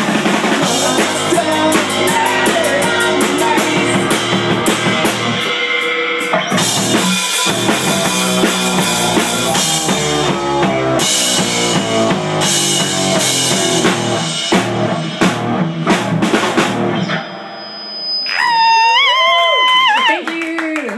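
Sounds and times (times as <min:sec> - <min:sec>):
drum kit: 0:00.0 - 0:17.7
live rock band: 0:00.0 - 0:18.9.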